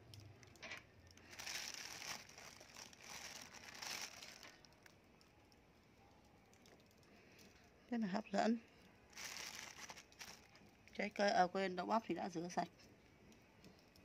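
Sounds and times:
plastic bag crinkling: 0.4s - 5.0s, 9.1s - 11.0s.

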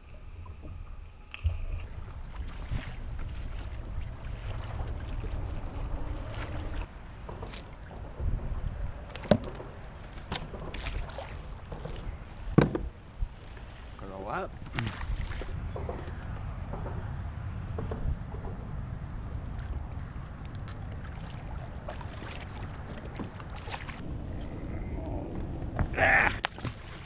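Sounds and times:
wind buffeting microphone: 0.0s - 26.4s
water against plastic kayak: 0.0s - 27.0s
sharp knocks on kayak: 10.3s - 13.0s.

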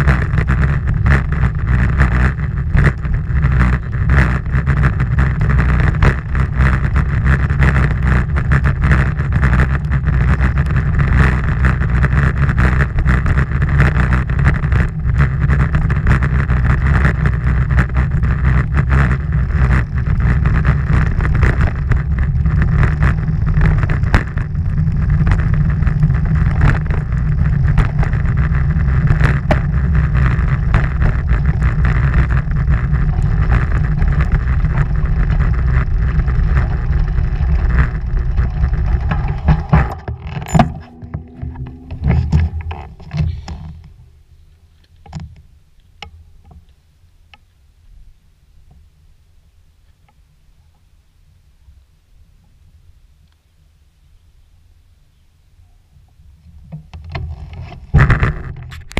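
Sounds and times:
small knocks and rattles: 0.0s - 44.1s
wind rumble on microphone: 0.0s - 46.7s, 55.6s - 58.9s.

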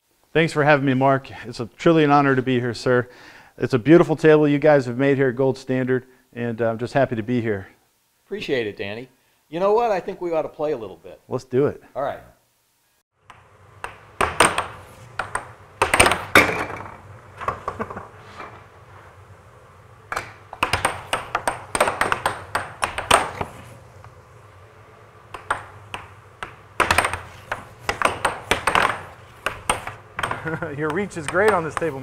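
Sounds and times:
air hockey puck clacking: 13.2s - 18.1s, 20.0s - 24.2s, 25.2s - 32.0s
air blower humming: 13.2s - 32.0s.

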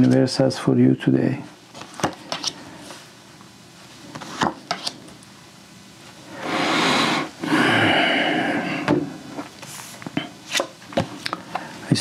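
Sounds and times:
cards being shuffled: 1.7s - 2.6s, 4.1s - 5.1s, 9.5s - 11.5s.

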